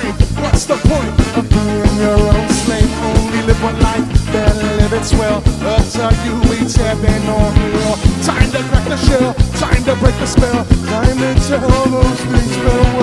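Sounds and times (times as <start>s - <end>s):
drum kit: 0.0s - 13.0s
horns: 0.0s - 13.0s
ska band playing live: 0.0s - 13.0s.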